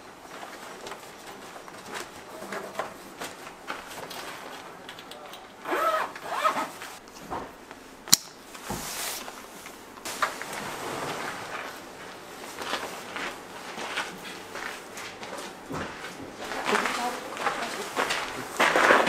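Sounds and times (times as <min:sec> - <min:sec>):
zipper being pulled: 0:05.6 - 0:07.0.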